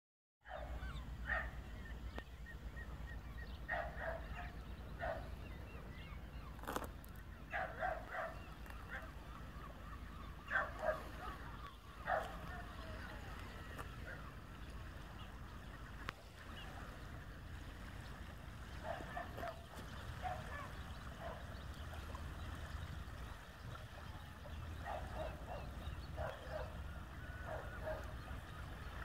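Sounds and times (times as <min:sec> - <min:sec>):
birds calling: 0:00.4 - 0:29.0.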